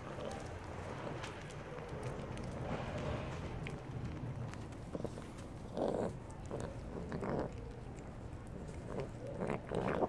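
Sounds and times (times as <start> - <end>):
cat chewing food: 0.0 - 10.0
cat growling noises: 4.9 - 10.0.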